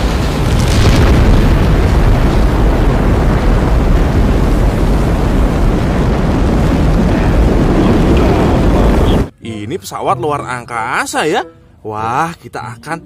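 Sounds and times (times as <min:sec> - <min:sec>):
rocket engines rumbling: 0:00.0 - 0:09.3.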